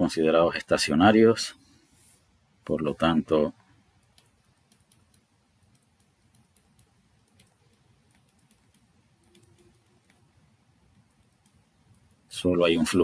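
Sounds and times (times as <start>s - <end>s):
stylus tapping on pen tablet: 4.0s - 10.3s, 10.9s - 12.3s.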